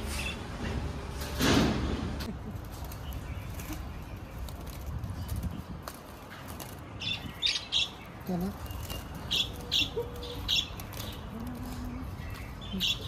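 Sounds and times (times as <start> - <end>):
budgerigars chirping: 7.0 - 11.3.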